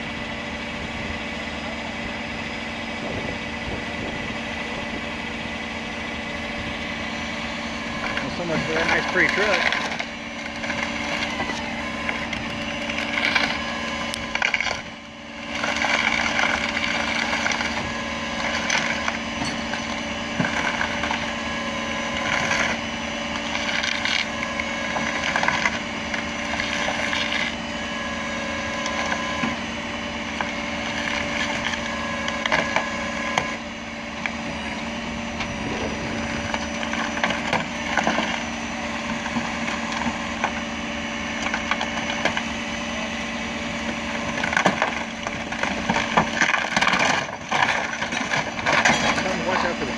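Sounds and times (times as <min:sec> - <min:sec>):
tow truck engine running: 0:00.0 - 0:49.9
car scraping over pavement: 0:07.9 - 0:21.3.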